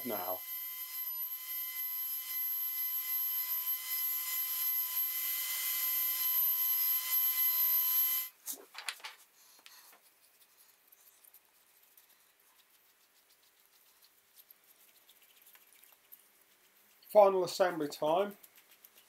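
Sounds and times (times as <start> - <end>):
router whining with cutting hiss: 0.0 - 8.3.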